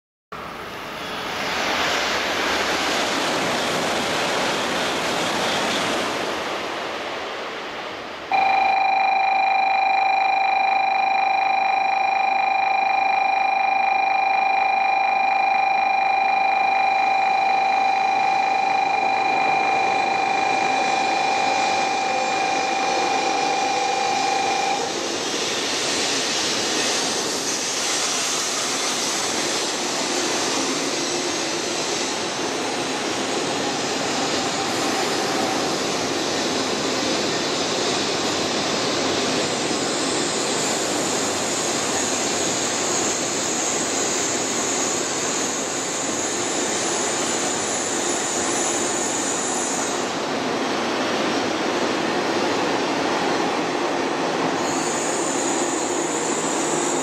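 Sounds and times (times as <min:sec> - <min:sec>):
train rushing: 0:00.4 - 0:57.0
steady electronic tone: 0:08.3 - 0:25.0.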